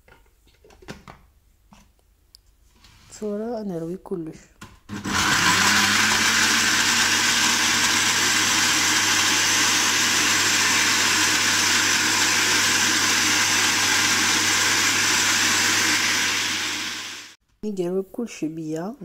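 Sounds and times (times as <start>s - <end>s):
blender running: 4.9s - 17.4s.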